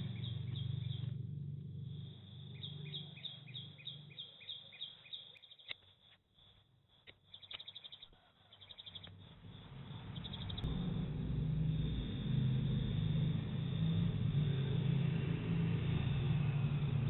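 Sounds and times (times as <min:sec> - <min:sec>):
low steady rumble: 0:00.0 - 0:04.2, 0:09.2 - 0:17.0.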